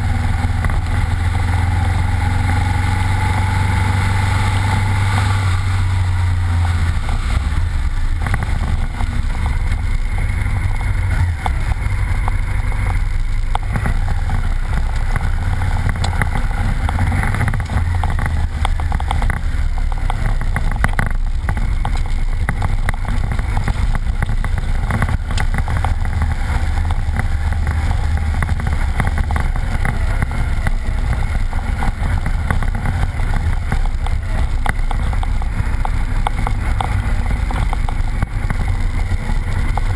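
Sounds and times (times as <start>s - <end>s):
motorcycle engine running: 0.0s - 39.9s
small ticks and knocks: 8.2s - 39.9s.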